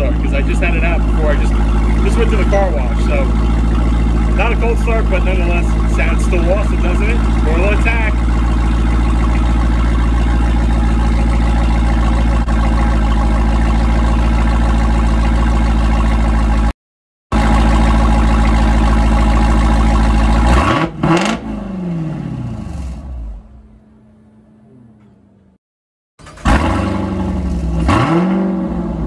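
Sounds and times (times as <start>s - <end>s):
car engine idling: 0.0s - 16.7s, 17.3s - 25.6s
engine revving and winding down: 20.4s - 22.7s, 26.3s - 29.0s.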